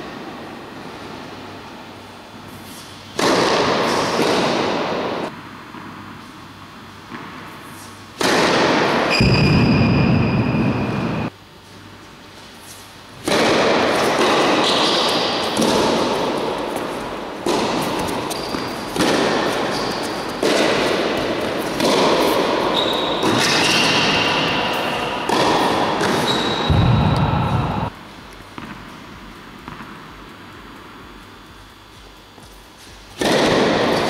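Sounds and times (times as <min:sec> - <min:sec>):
tennis ball hit by racket: 0:03.1 - 0:05.2, 0:08.2 - 0:09.5, 0:13.2 - 0:27.9, 0:29.6 - 0:30.0, 0:33.1 - 0:34.0.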